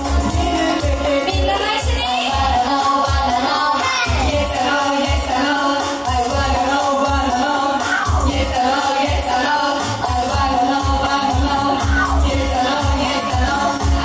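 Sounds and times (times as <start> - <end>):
pop music with bass beat: 0.0 - 14.0
young female voices singing: 0.0 - 14.0.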